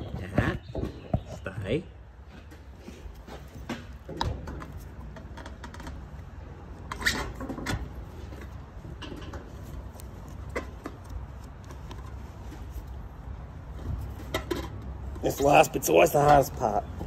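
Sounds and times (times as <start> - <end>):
rubber squeaking against metal: 0.0 - 1.6.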